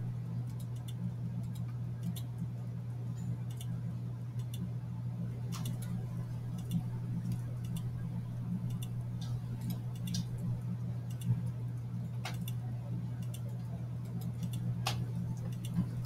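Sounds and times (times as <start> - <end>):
steady low hum: 0.0 - 16.0
computer mouse clicking: 0.4 - 2.4, 3.5 - 3.7, 4.4 - 4.7, 5.5 - 8.0, 8.7 - 10.4, 11.1 - 11.5, 12.2 - 12.6, 13.2 - 16.0.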